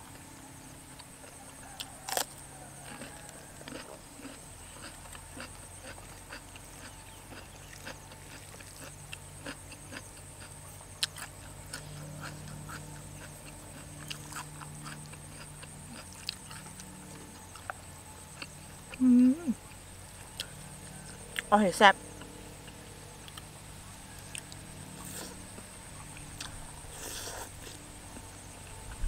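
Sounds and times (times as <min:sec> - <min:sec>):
faint insect drone: 0:00.0 - 0:29.0
person chewing wetly: 0:01.7 - 0:19.2, 0:24.2 - 0:27.8.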